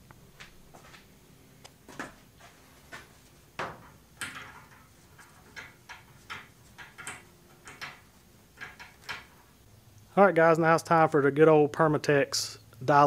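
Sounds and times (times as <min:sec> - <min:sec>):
towel scuffing and rustling: 0:01.8 - 0:03.5.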